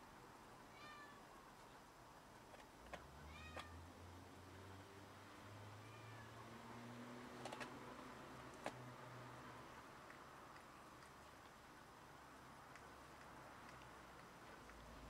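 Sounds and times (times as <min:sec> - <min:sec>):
cat meowing low: 0:00.7 - 0:01.2, 0:03.3 - 0:03.8, 0:05.8 - 0:06.4.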